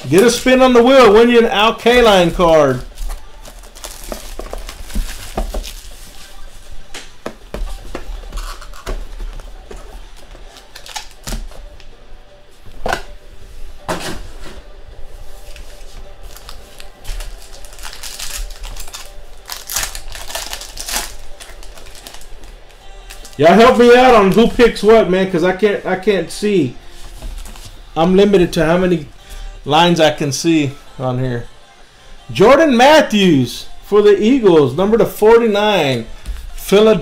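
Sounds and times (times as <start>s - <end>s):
foil card pack rustling: 1.9s - 6.7s, 8.3s - 11.5s, 15.5s - 24.8s
plastic shrink wrap crinkling: 2.6s - 6.5s, 10.4s - 11.4s, 16.2s - 24.5s.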